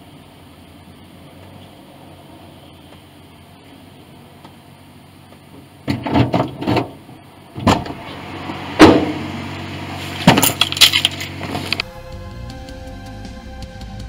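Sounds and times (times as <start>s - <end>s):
faint steady hum: 0.0s - 14.0s
knocks and rattles inside a car: 5.3s - 8.0s
loud thump: 7.6s - 9.4s, 10.1s - 11.8s.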